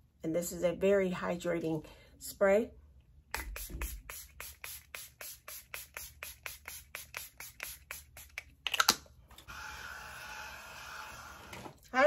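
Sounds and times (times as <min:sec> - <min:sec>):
spray bottle misting: 0:03.4 - 0:08.5.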